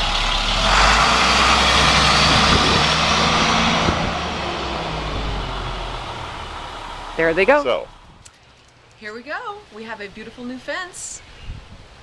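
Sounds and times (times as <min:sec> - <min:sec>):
diesel truck engine pulling away: 0:00.0 - 0:08.2.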